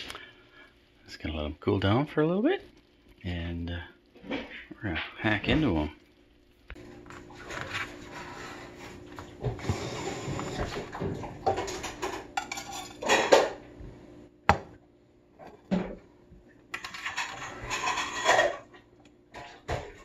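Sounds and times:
knife scraping baking dish: 16.8 - 18.7.

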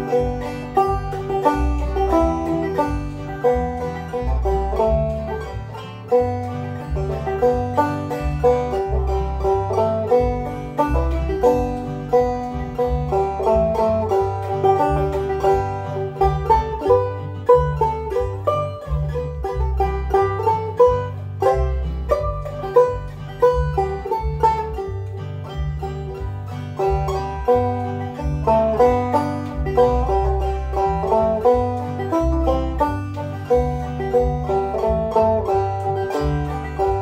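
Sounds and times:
banjo plucked melody: 0.0 - 37.0
electronic backing track with bass: 0.0 - 37.0.

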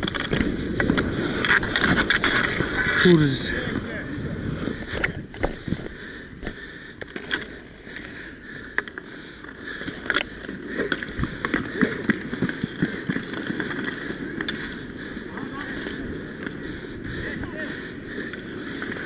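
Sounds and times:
hockey sticks clacking: 0.0 - 2.7, 8.7 - 16.6
skate wheels rolling on rink: 0.0 - 19.0.

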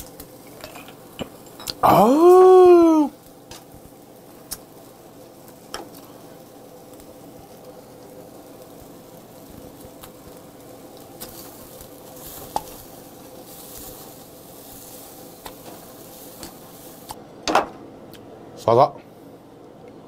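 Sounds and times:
meat sizzling on grill: 0.0 - 18.1
person vocal sound: 1.8 - 3.1.

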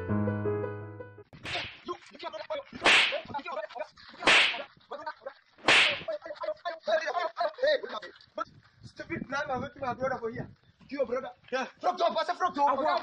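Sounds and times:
piano music: 0.0 - 1.3
stick whipping through air: 1.4 - 1.9, 2.8 - 3.3, 4.2 - 4.7, 5.6 - 6.1.

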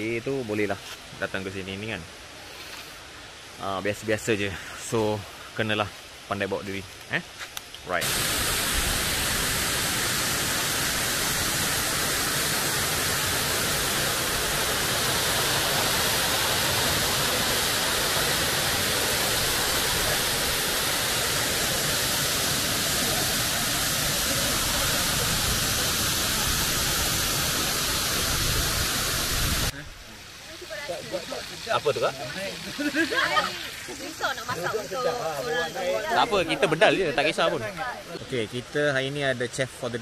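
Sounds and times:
waterfall rushing: 7.9 - 39.0.

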